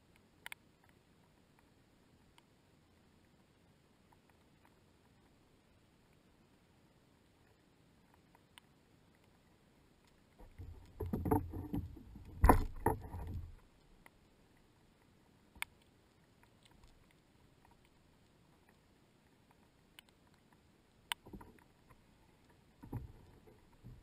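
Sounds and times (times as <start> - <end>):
gear knocking against plastic kayak: 10.4 - 13.6.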